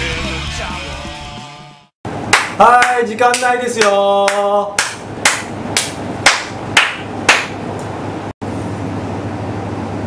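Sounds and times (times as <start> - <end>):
steady low hum: 2.1 - 10.0
person clapping hands: 2.3 - 7.6.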